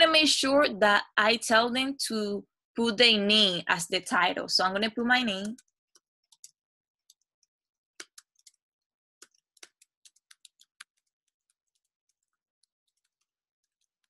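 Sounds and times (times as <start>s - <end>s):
computer keyboard typing: 5.4s - 8.6s, 9.2s - 14.0s.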